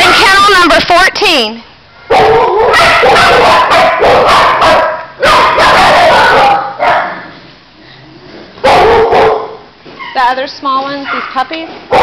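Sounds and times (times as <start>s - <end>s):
dogs barking loudly: 2.0s - 7.6s, 8.2s - 12.0s.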